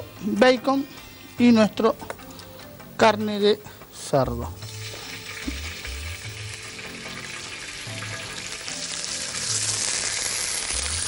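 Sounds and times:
meat sizzling in hot oil: 4.6s - 11.0s.

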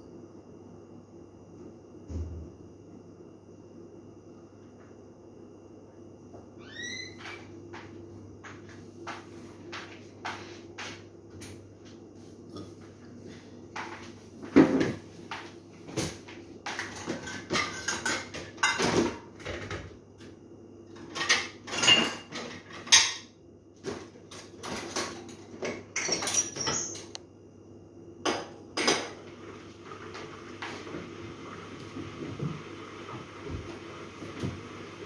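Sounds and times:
dishes and utensils clinking: 16.7s - 19.2s, 21.1s - 23.3s, 24.3s - 27.1s.

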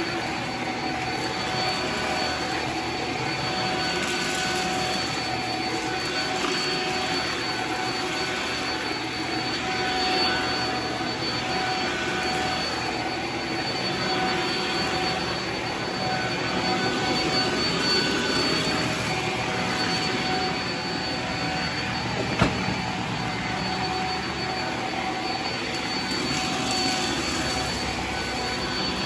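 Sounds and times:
stick vacuum running on carpet: 0.0s - 29.0s.

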